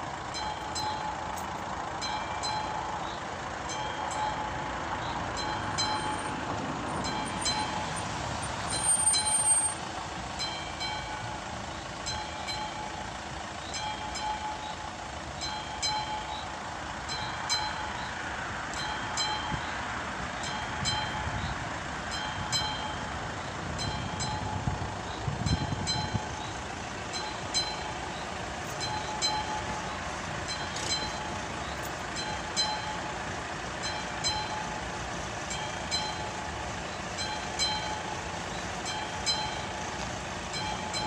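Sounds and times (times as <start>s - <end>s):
level crossing bell ringing: 0.2s - 3.0s, 3.6s - 4.7s, 5.4s - 6.4s, 10.4s - 13.1s, 27.1s - 36.5s, 37.1s - 39.9s, 40.5s - 41.0s.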